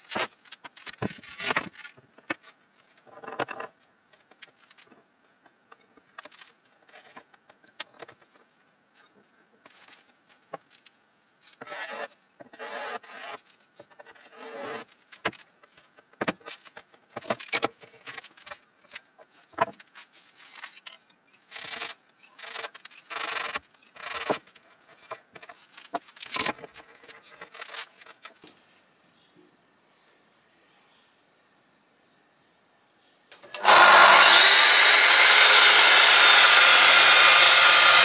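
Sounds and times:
clamps scraping and rubbing: 11.5 - 15.0, 20.3 - 28.3, 33.5 - 38.0.

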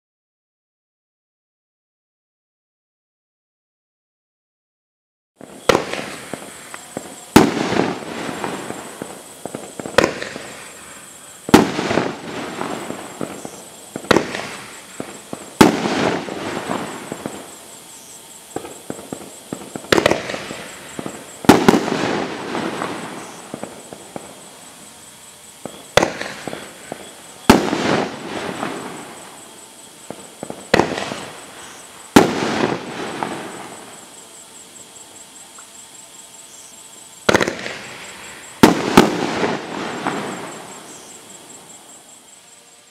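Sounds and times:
firework lift shots: 5.4 - 17.6, 18.5 - 24.4, 30.0 - 34.0, 37.2 - 41.2
firework shell bursts: 5.5 - 17.6.

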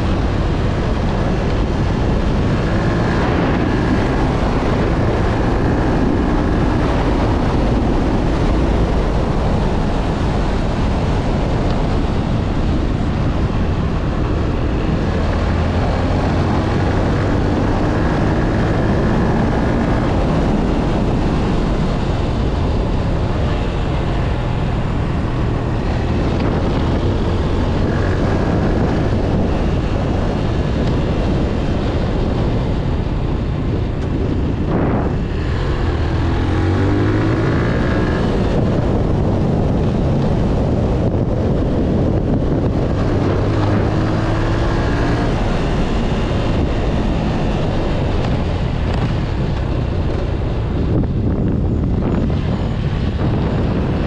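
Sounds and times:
motorcycle engine: 0.0 - 54.0
wind noise on microphone: 0.0 - 54.0.

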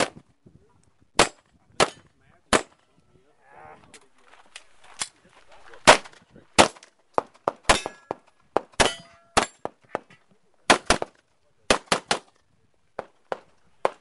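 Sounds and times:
pistol shots: 1.2 - 2.8, 5.8 - 10.0, 10.7 - 12.3
steel targets clanging: 7.7 - 8.2, 8.8 - 9.7.

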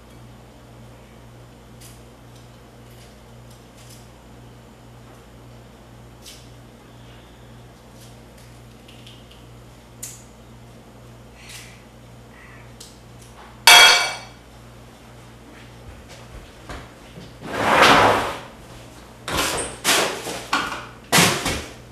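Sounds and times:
sharp metallic clang: 13.7 - 14.3
kitchen knocks and clatters: 13.7 - 14.4, 19.3 - 21.8.

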